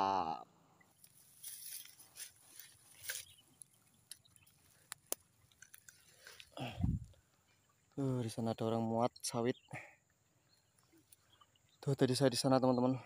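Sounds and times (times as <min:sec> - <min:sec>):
dry grass rustling and crackling: 0:01.0 - 0:07.2.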